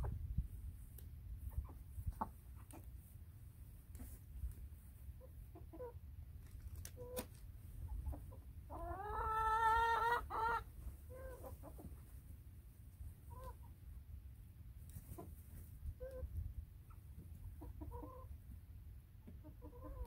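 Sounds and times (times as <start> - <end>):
chickens clucking: 0.0 - 12.2, 13.0 - 14.0, 14.8 - 18.6, 19.2 - 20.0
chicken long drawn-out call: 8.7 - 11.5.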